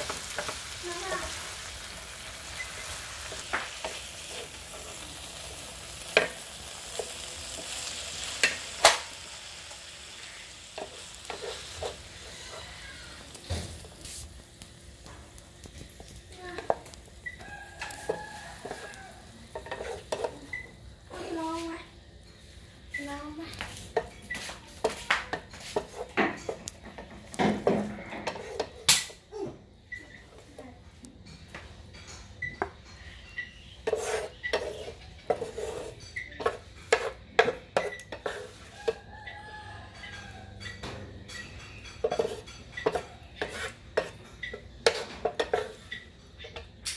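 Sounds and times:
food sizzling in a frying pan: 0.0 - 30.8, 31.4 - 46.9
wooden spatula scraping a pan: 2.5 - 8.6, 9.8 - 14.3, 16.4 - 21.7, 23.0 - 28.8, 33.6 - 39.1, 41.6 - 46.8.

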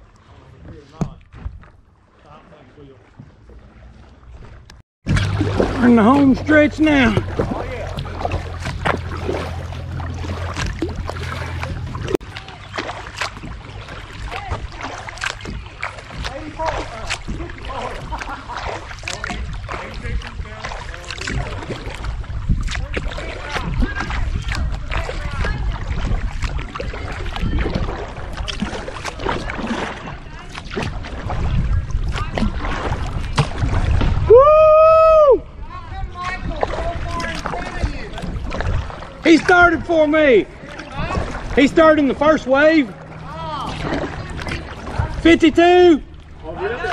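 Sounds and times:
paddle splashing in water: 0.0 - 46.9
low hum: 5.1 - 19.8
water dripping: 5.1 - 29.9.

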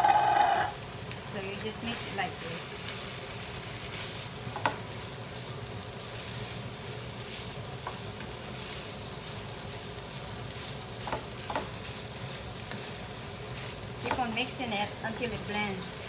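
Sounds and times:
food sizzling: 0.0 - 16.0
spatula tapping pan: 4.5 - 4.8, 11.0 - 12.0, 14.0 - 14.6.

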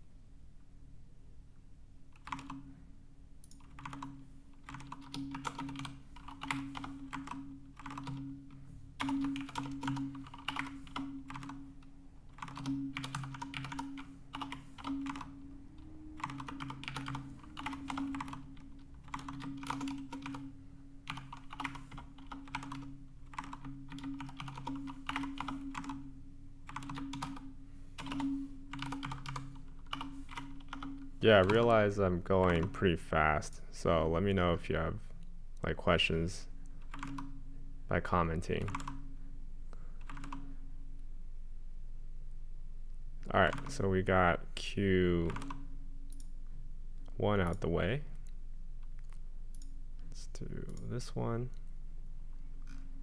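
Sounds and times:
typing on computer keyboard: 2.1 - 2.7, 3.4 - 15.4, 16.2 - 26.1, 26.7 - 31.7, 36.8 - 37.3, 38.6 - 39.0, 40.0 - 40.5, 43.4 - 43.8, 45.3 - 46.3.

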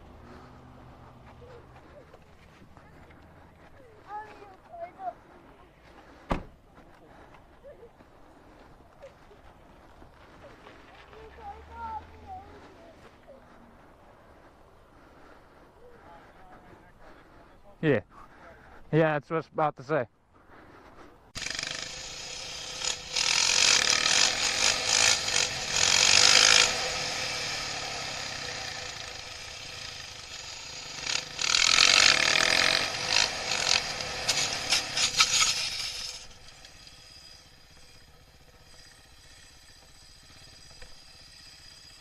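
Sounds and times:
motorcycle engine revving: 21.3 - 42.0.

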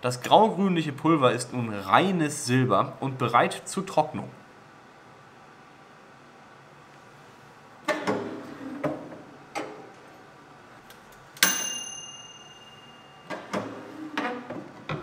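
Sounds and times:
glass dish clinking on metal rack: 11.4 - 13.6.

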